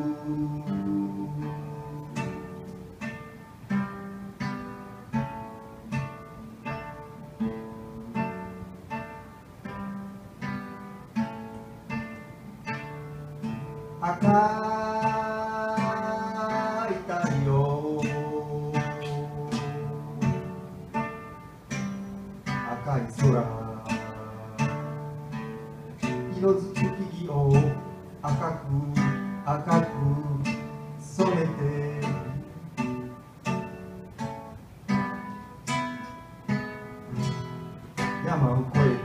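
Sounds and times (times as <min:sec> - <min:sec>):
man singing: 0:00.0 - 0:03.0, 0:14.0 - 0:21.0, 0:22.5 - 0:33.1, 0:38.0 - 0:39.0
acoustic guitar picked: 0:00.0 - 0:39.0.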